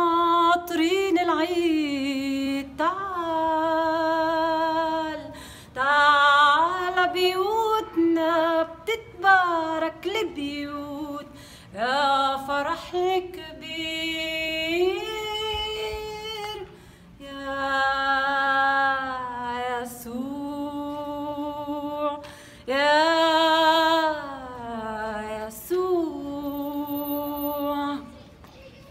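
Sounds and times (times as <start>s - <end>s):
woman singing unaccompanied: 0.0s - 28.2s
singer's short breaths: 5.3s - 5.8s, 11.3s - 11.7s, 16.7s - 17.2s, 22.2s - 22.7s.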